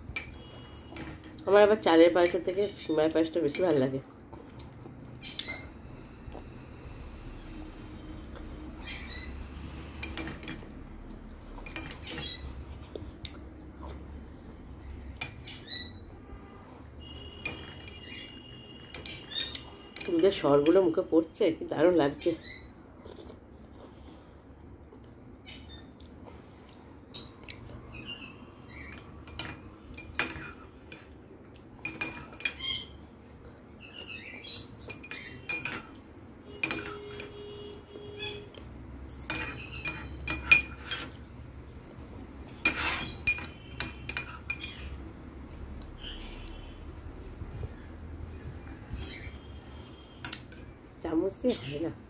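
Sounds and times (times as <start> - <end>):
spoon clinking on glass bowl: 11.6 - 12.4, 28.9 - 31.1, 31.8 - 32.6, 34.8 - 37.7, 39.1 - 41.1, 42.6 - 44.9.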